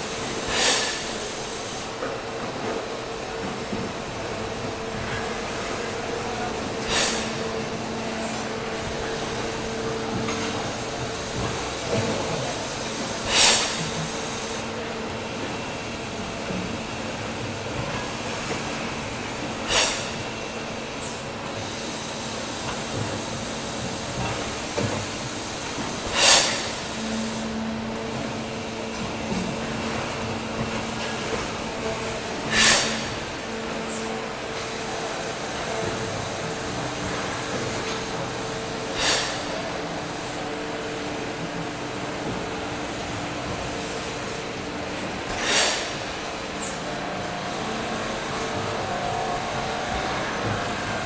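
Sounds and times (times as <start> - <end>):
compressed air hisses: 0.0 - 2.0, 5.1 - 16.0, 18.0 - 27.5, 32.4 - 34.1, 37.3 - 40.7, 43.8 - 51.0
machine humming: 2.2 - 21.5, 26.8 - 51.0.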